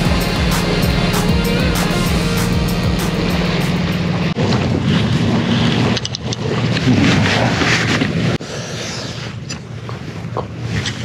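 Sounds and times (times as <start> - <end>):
low engine drone: 0.0 - 5.6
sea waves: 0.0 - 10.8.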